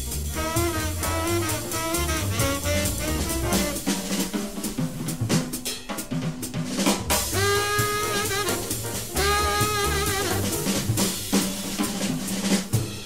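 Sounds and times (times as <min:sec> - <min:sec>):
double bass notes: 0:00.0 - 0:03.9, 0:07.3 - 0:11.2
drum kit snare and rimshots: 0:00.0 - 0:13.0
tenor saxophone long notes: 0:00.4 - 0:03.9, 0:07.3 - 0:10.8.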